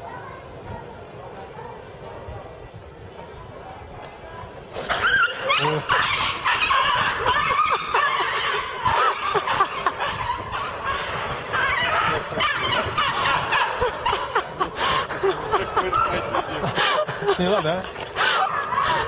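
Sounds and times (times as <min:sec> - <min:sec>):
people laughing: 0:04.9 - 0:19.0.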